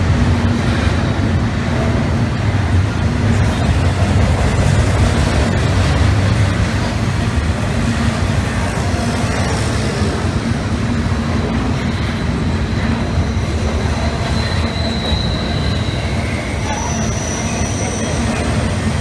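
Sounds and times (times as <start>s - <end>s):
freight train wheels rumbling on rails: 0.0s - 19.0s
high wheel squeal: 11.7s - 19.0s.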